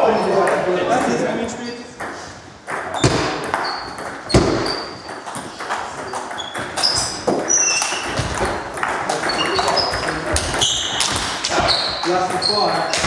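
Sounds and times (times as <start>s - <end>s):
shoe squeaks: 2.9s - 13.0s.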